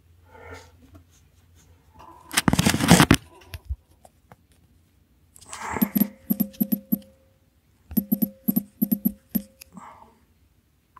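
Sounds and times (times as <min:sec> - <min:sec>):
faint ringing tone: 0:05.8 - 0:09.8.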